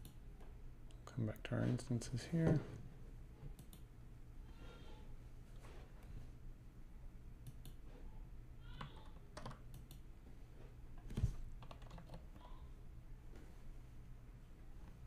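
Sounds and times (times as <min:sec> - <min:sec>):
keyboard typing: 0:08.8 - 0:10.0, 0:11.6 - 0:12.3.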